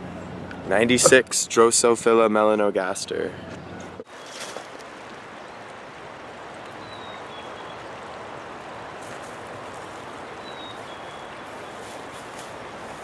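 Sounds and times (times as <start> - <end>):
rocky creek rushing: 4.0 - 13.0.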